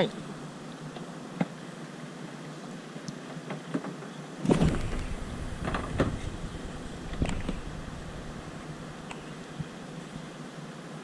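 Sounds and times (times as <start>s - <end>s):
wind and sea noise: 0.0s - 10.7s
wind rumble on microphone: 4.5s - 10.3s.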